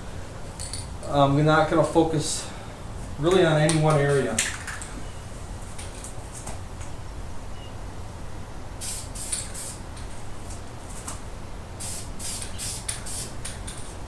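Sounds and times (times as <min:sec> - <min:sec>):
aerosol paint spraying: 0:08.8 - 0:09.8, 0:11.8 - 0:13.6.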